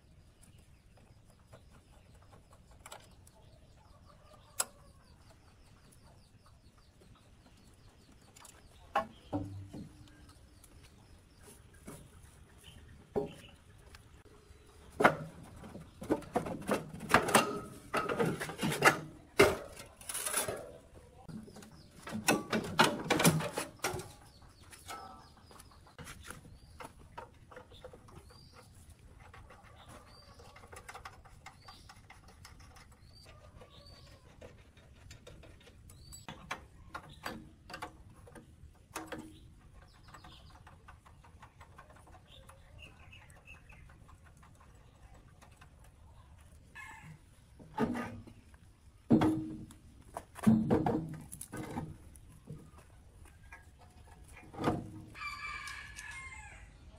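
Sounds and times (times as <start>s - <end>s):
small birds chirping: 0.0s - 16.4s, 19.0s - 22.4s, 23.4s - 49.1s
hand tools knocking and scraping: 14.8s - 46.0s, 47.6s - 55.2s.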